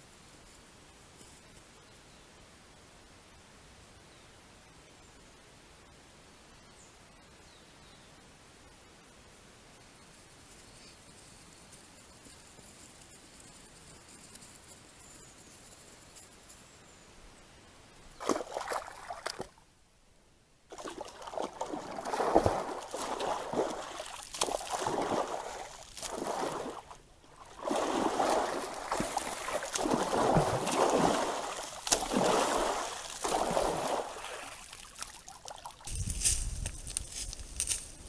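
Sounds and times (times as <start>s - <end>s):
deer splashing in muddy water: 18.2s - 19.6s, 20.7s - 36.0s.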